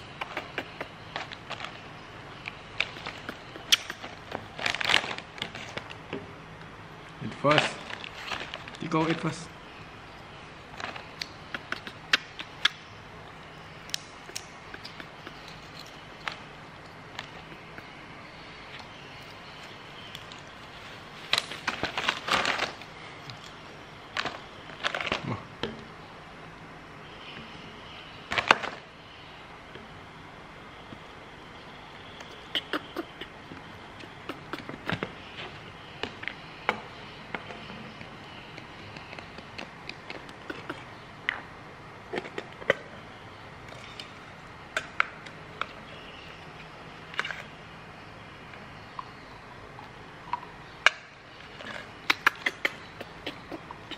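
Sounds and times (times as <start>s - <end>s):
snack packet crinkling: 2.8s - 6.0s.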